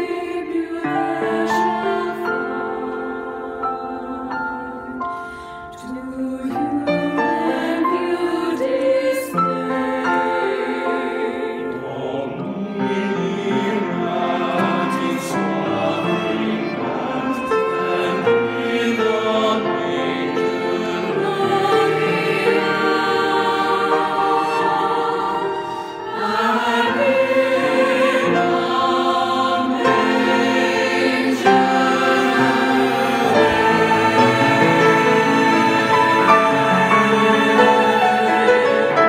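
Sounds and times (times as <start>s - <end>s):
choir singing a hymn: 0.0s - 39.0s.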